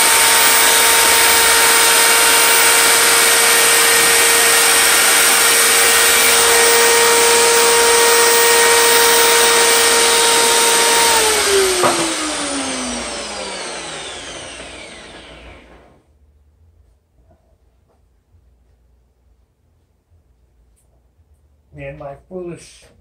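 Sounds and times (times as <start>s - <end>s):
miter saw motor whining: 0.0s - 16.0s.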